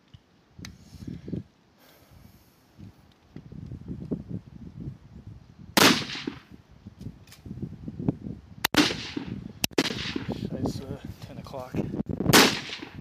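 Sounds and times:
wind rumbling on microphone: 0.0 - 13.0
rifle shots echoing: 5.8 - 6.5, 8.7 - 10.4, 12.3 - 13.0
sharp cracks: 5.8 - 6.5, 8.6 - 10.4, 12.3 - 13.0.

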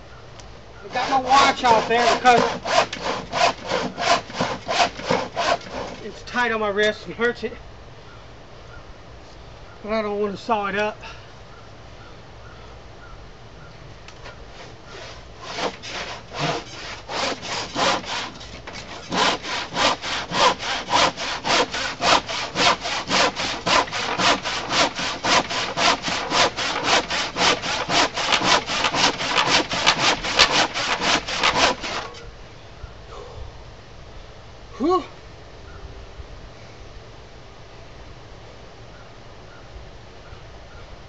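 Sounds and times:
handsaw cutting wood: 0.9 - 6.1, 14.6 - 32.2.

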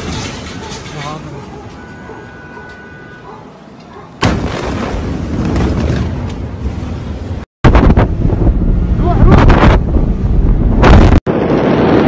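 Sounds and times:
wind buffeting microphone: 7.7 - 12.0.

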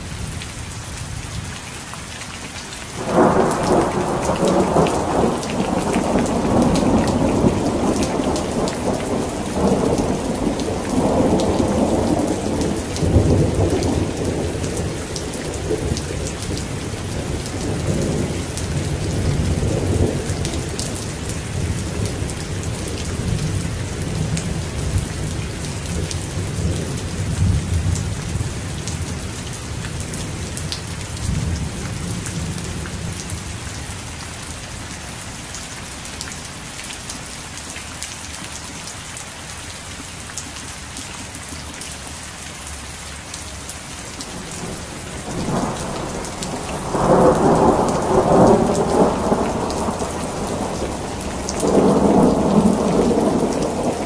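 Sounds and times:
heavy rain: 0.0 - 54.0
thunder rumbling: 3.0 - 25.3, 44.3 - 54.0.

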